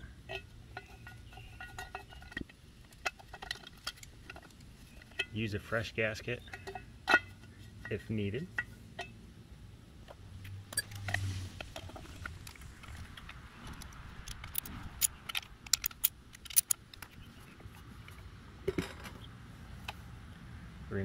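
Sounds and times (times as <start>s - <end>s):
metallic clinks of socket and bolts: 13.8s - 17.1s.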